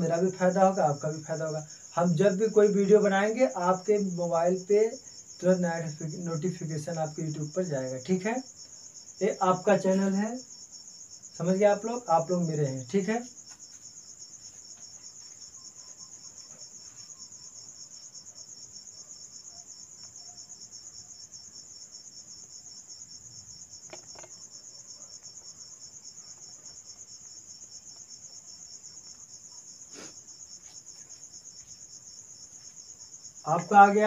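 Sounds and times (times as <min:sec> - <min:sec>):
cricket chirping: 0:00.0 - 0:34.0
faint knocks: 0:23.8 - 0:24.4.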